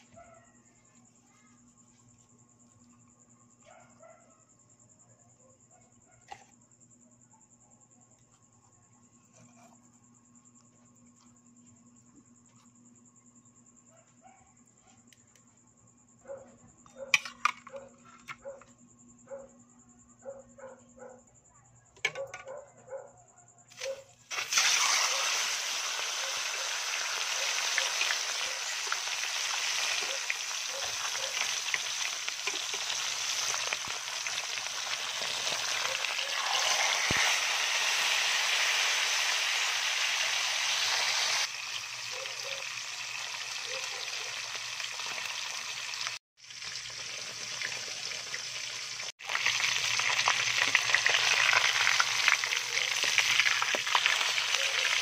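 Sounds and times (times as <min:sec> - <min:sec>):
fish sizzling in hot oil: 0:24.3 - 0:55.0.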